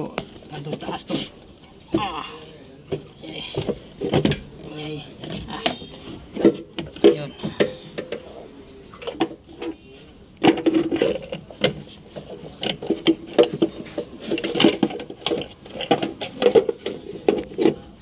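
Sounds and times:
plastic cover knocking and scraping: 2.9s - 4.6s, 5.2s - 8.4s, 10.4s - 18.0s.

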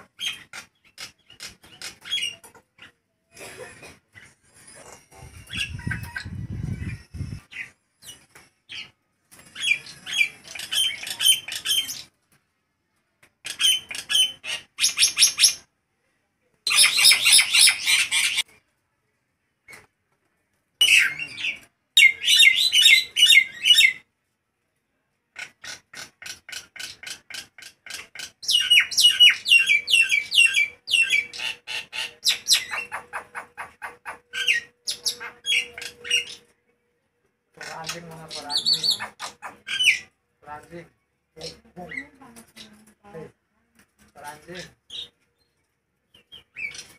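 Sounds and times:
myna bird chattering song: 25.4s - 36.5s, 37.6s - 40.2s.

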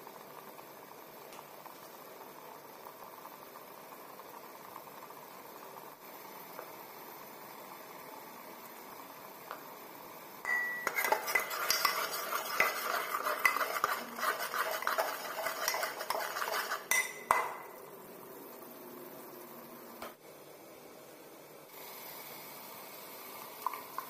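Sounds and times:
spoon scraping metal pot: 10.5s - 17.6s.

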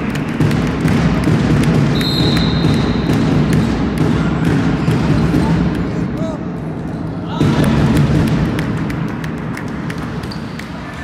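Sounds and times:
ball bouncing on hall floor: 0.0s - 11.0s
players' noise: 0.0s - 11.0s
high whistle blast: 2.0s - 3.1s.

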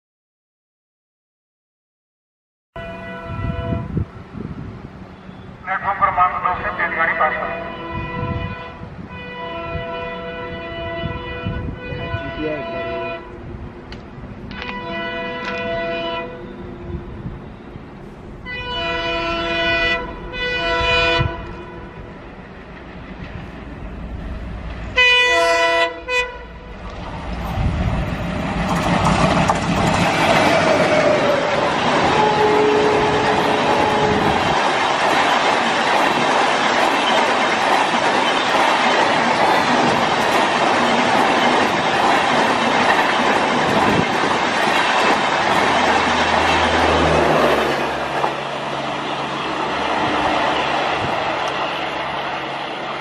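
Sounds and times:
locomotive horn: 2.8s - 4.0s, 5.2s - 13.5s, 14.5s - 17.7s, 18.4s - 22.1s, 24.9s - 26.7s, 32.0s - 34.5s
train approaching at speed: 2.8s - 53.0s
wheels clickety-clack: 26.8s - 32.2s, 33.1s - 48.4s.

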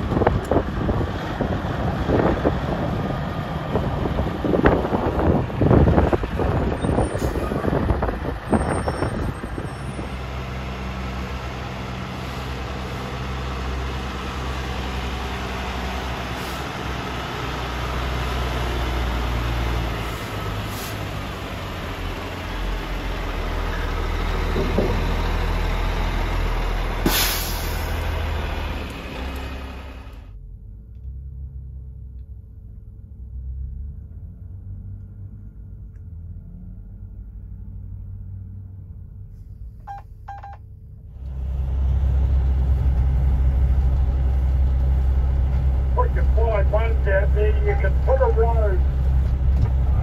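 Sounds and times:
trucks driving past: 0.0s - 50.0s
air brake hiss: 20.2s - 21.0s, 27.0s - 28.0s.

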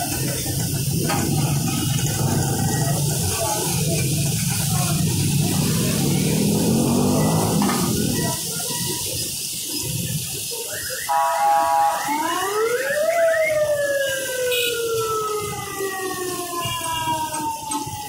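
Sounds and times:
meat sizzling on griddle: 0.0s - 12.1s
siren-like wailing tone: 5.0s - 8.4s, 10.7s - 18.0s.

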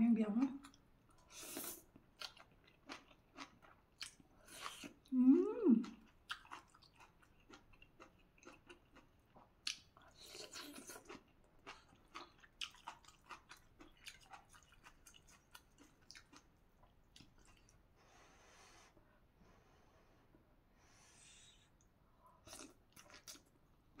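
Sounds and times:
crisp chewing crunches: 1.6s - 5.1s, 6.0s - 17.8s.

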